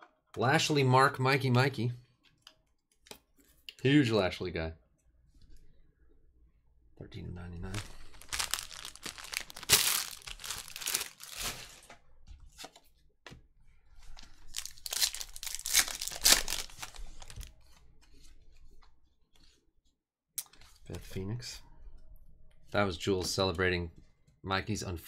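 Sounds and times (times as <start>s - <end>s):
card pack wrapper torn and crinkled: 7.7s - 11.9s, 14.4s - 17.5s.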